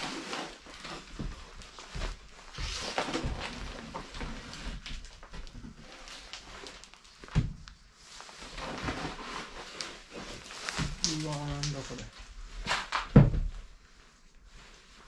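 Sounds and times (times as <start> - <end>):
debris falling: 10.3 - 13.3
wooden boards cracking and splintering: 10.4 - 13.4.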